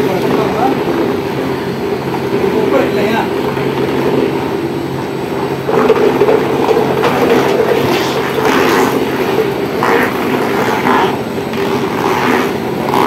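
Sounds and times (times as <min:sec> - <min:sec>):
oil press mechanical drone: 0:00.0 - 0:13.0.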